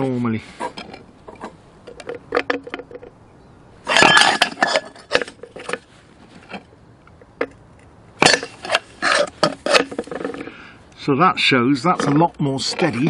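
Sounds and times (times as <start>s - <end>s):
metal kettle rattling on concrete: 0.8s - 3.2s, 3.9s - 5.9s, 8.2s - 10.5s.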